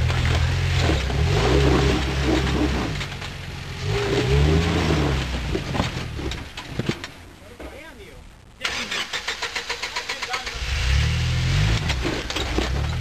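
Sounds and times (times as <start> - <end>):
engine revving: 0.0 - 6.3, 8.6 - 13.0
tyres knocking and scraping on rock: 0.0 - 7.9, 11.7 - 13.0.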